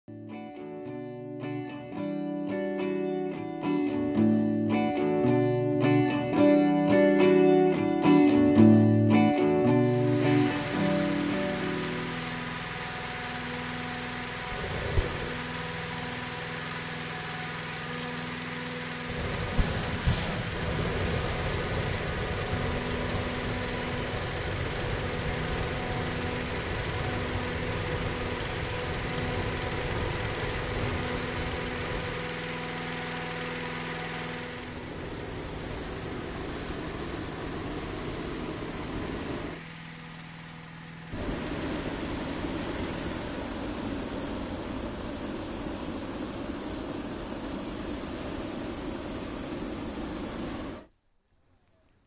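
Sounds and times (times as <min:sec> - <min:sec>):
propane burner roaring: 0:09.7 - 0:50.9
steady engine hum: 0:09.7 - 0:50.9.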